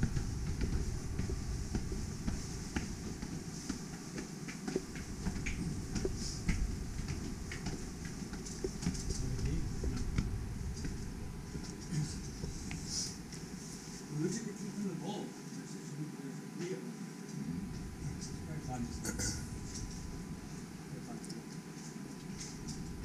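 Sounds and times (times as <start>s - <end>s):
footsteps on stone steps: 0.0s - 13.5s
steady low rumble: 0.0s - 13.9s, 17.4s - 21.1s, 22.2s - 23.0s.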